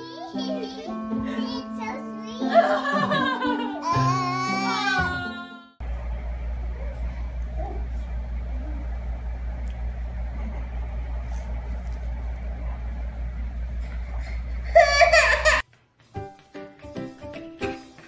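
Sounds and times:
baby crying: 3.7 - 5.5
steady low hum: 5.8 - 15.6.

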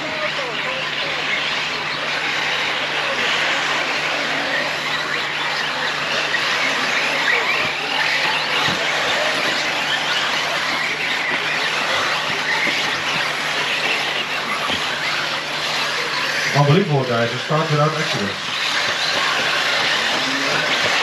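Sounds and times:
electric motor whines: 0.0 - 21.0
tyre noise on track: 0.0 - 21.0.

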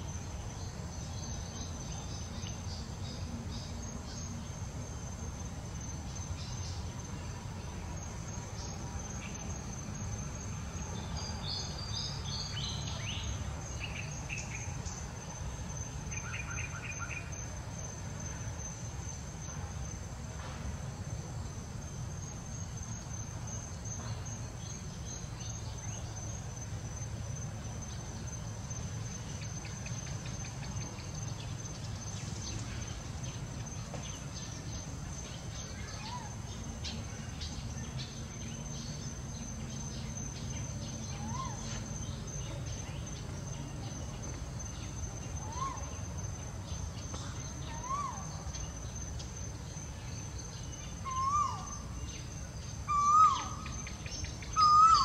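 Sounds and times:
high-pitched insect drone: 22.3 - 55.0
bird-like chirps and trill: 52.9 - 55.0.

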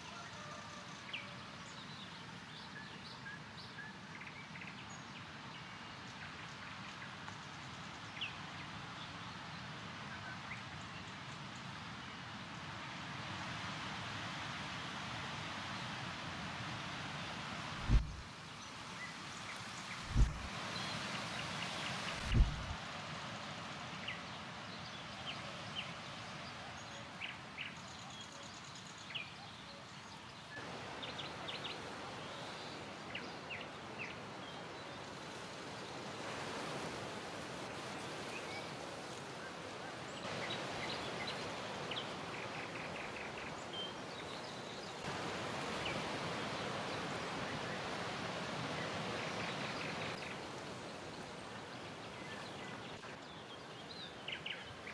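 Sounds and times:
wind rustling through foliage: 0.0 - 54.9
wind rushing: 17.8 - 18.2, 20.1 - 20.5, 22.2 - 22.8
small birds chirping: 19.4 - 22.8.

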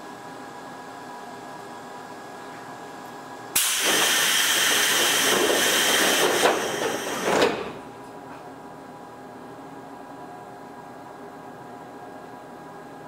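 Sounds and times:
compressed air hissing: 3.6 - 7.6.

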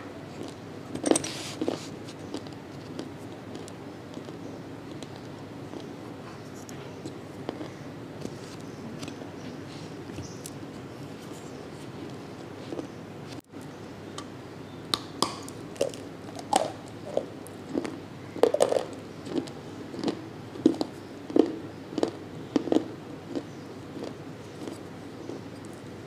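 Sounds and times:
chewing crunchy clay: 0.3 - 0.6, 1.3 - 9.2, 15.2 - 25.8.

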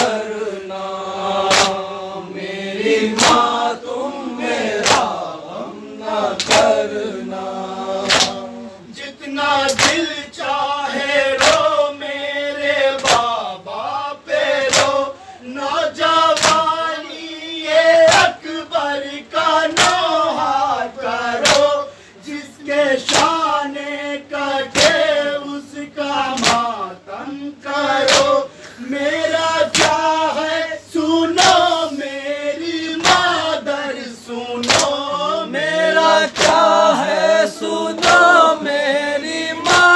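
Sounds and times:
men chanting: 0.0 - 39.9
hands slapping chests: 1.4 - 1.8, 3.1 - 3.6, 4.8 - 5.2, 6.4 - 6.8, 8.0 - 8.4, 9.7 - 10.1, 11.4 - 11.7, 13.0 - 13.4, 14.6 - 15.0, 16.3 - 16.7, 19.7 - 20.1, 21.4 - 21.7, 23.0 - 23.4, 24.7 - 25.0, 26.3 - 26.8, 28.0 - 28.4, 29.7 - 30.1, 33.0 - 33.3, 34.6 - 35.0, 36.3 - 36.7, 38.0 - 38.4
man singing a lament: 2.6 - 39.9.

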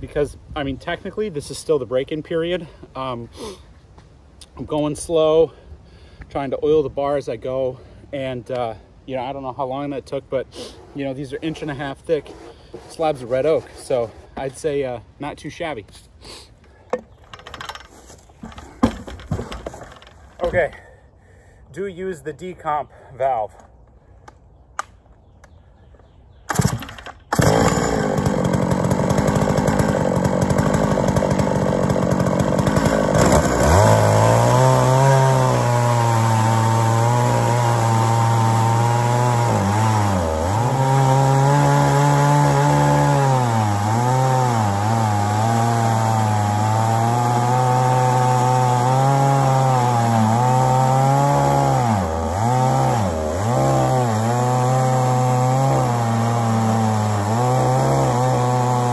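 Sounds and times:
chainsaw cutting log: 10.6 - 14.8, 26.5 - 58.9.

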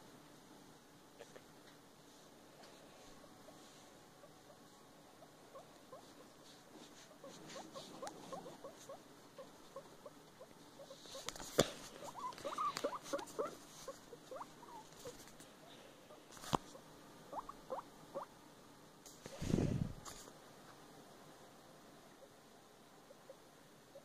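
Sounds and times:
guinea pig squeaking: 5.2 - 15.4, 16.1 - 18.3.

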